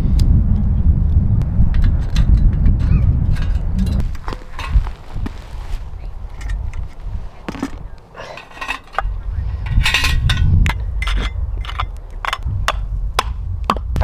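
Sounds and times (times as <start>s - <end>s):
metal pot and lid clinking: 1.8s - 4.9s, 7.5s - 12.4s.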